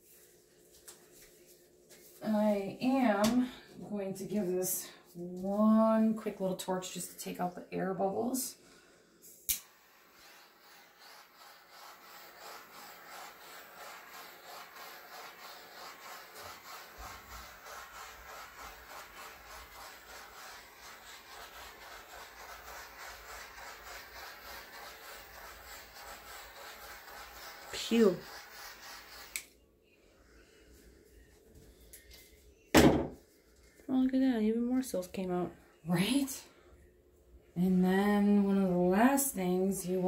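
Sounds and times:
torch flame hissing: 9.2s - 29.5s
torch clicking alight: 9.4s - 9.8s.

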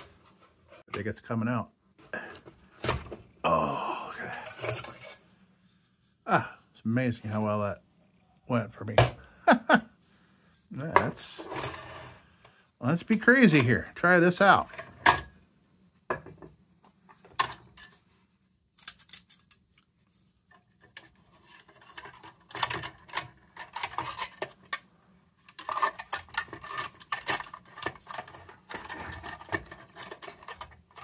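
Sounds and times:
metal parts clinking and scraping: 21.0s - 24.8s, 25.4s - 31.0s.

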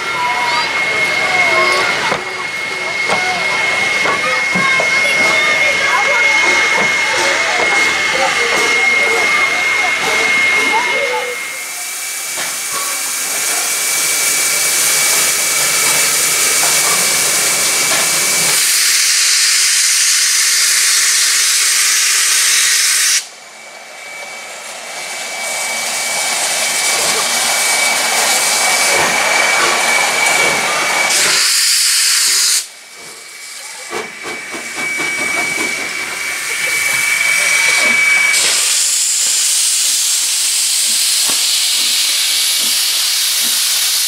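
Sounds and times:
high whistling tone: 0.0s - 11.9s, 33.5s - 39.6s
steam locomotive hissing: 0.0s - 44.0s.

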